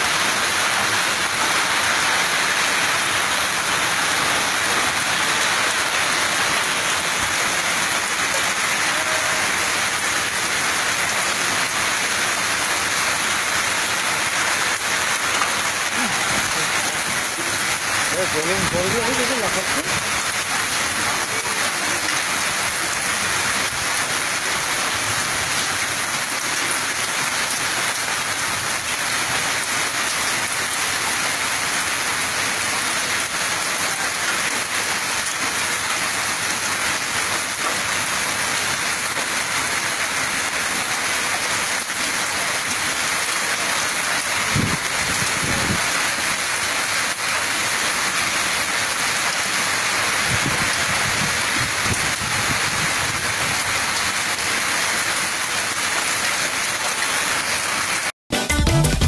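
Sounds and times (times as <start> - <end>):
hail and heavy rain: 0.0 - 59.0
strong wind: 44.4 - 45.9, 50.2 - 53.6.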